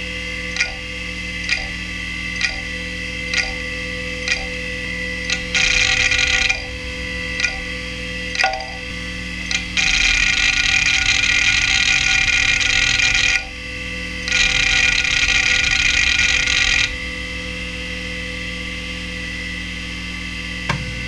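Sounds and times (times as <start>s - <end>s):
hard drive spindle whine: 0.0s - 21.0s
hard drive heads chattering: 5.2s - 6.7s, 9.5s - 13.4s, 14.3s - 16.9s.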